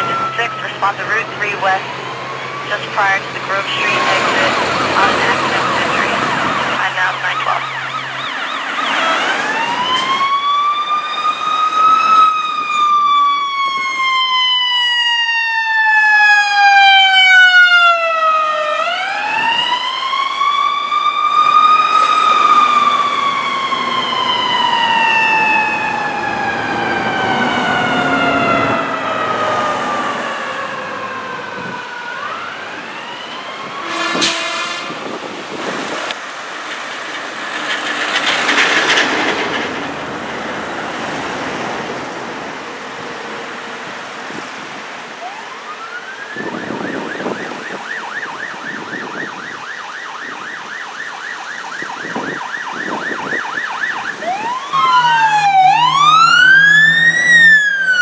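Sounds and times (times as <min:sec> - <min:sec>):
ambulance siren wailing: 0:00.0 - 0:36.1, 0:38.3 - 0:58.0
short sharp siren burst: 0:17.9 - 0:29.4, 0:33.5 - 0:35.1, 0:51.3 - 0:58.0.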